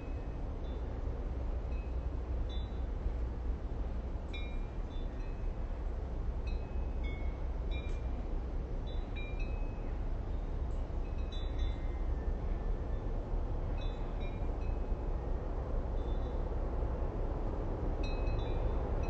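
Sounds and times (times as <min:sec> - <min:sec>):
low rumble of wind: 0:00.0 - 0:19.0.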